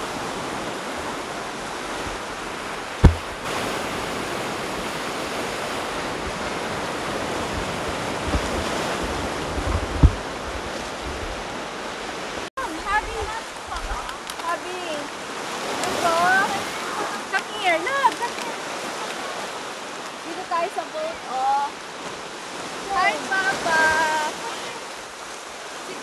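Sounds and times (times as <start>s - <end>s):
surf breaking on a beach: 0.0s - 26.0s
low thumps on microphone: 3.0s - 3.6s, 7.5s - 11.3s.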